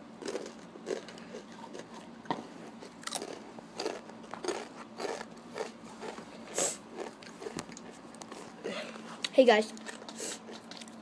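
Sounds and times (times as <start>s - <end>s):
tortilla chips crunching: 0.2s - 2.0s, 2.8s - 8.8s.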